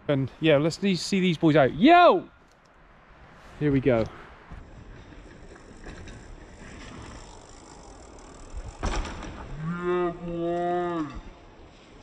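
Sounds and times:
bike landing on gravel: 4.8 - 9.7.

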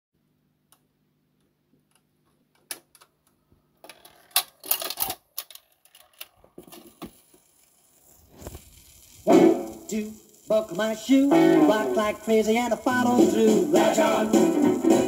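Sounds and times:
stylus hiss in groove: 7.9 - 15.0.

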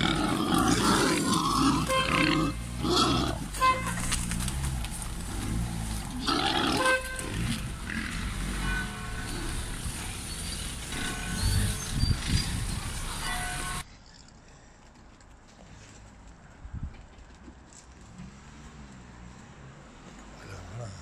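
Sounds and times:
wild boars grunting and squealing: 0.0 - 12.8.

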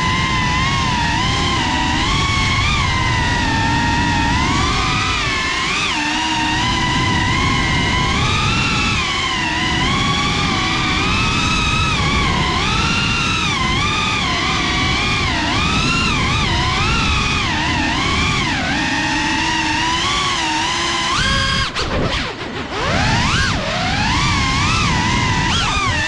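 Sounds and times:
drone motors whining: 0.0 - 26.0
rush of air: 21.2 - 26.0.

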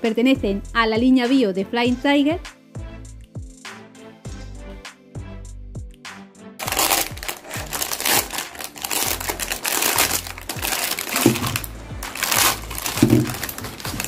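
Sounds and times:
background music with a beat: 0.0 - 14.0
plastic packaging crinkling: 6.6 - 14.0.

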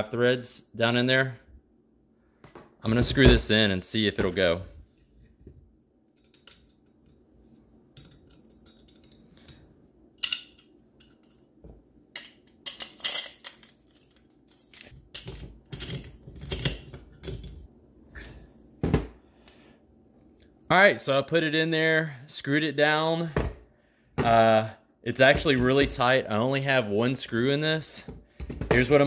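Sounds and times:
metal engine parts clinking: 12.2 - 17.4.

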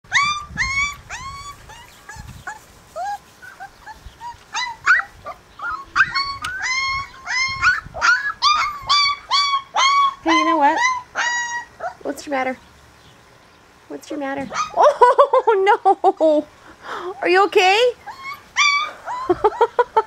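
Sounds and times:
puppy whimpering and yelping: 0.1 - 12.1, 14.5 - 15.0, 18.0 - 20.0.

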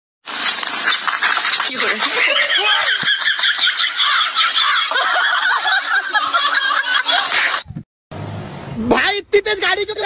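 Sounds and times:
high-pitched giggling laughter: 1.7 - 7.7.

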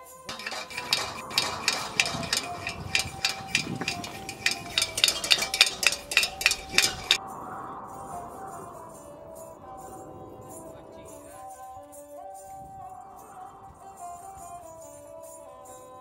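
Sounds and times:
metal pot and utensils clinking: 0.0 - 7.2
faint background music: 0.0 - 16.0.

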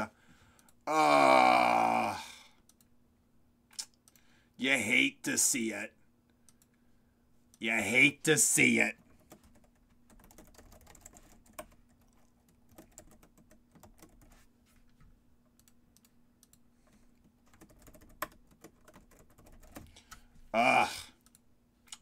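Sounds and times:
typing on computer keyboard: 9.2 - 14.4, 17.4 - 20.2.

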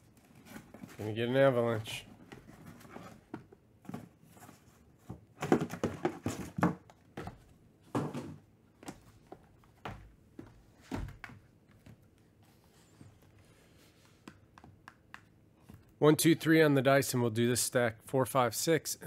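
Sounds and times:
cardboard boxes thunking and scuffing: 2.3 - 11.2
boxes knocking on table: 5.1 - 8.4.

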